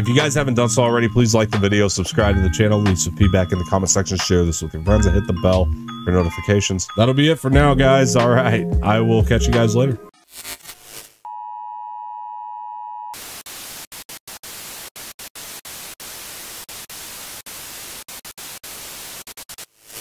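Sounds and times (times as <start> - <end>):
television static hiss: 13.2 - 20.0.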